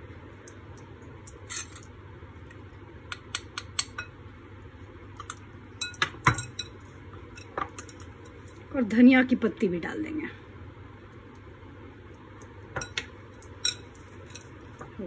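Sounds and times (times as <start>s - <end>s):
spoon clinking against glass: 12.8s - 14.5s.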